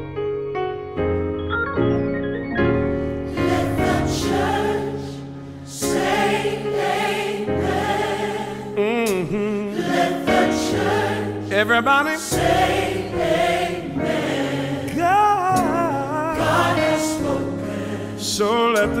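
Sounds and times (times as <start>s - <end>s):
keyboard accompaniment: 0.0s - 19.0s
gospel choir singing: 3.2s - 19.0s.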